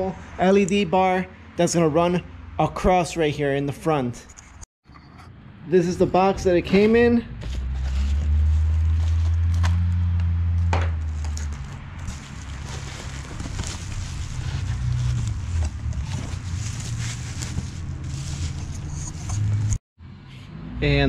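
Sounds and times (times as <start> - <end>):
bubble wrap and cardboard crackling: 11.0 - 18.9.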